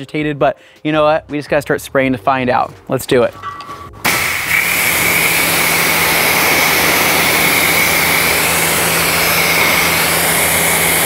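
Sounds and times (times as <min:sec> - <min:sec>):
pressure washer spraying water: 0:04.0 - 0:11.0
steady hum: 0:04.1 - 0:11.0.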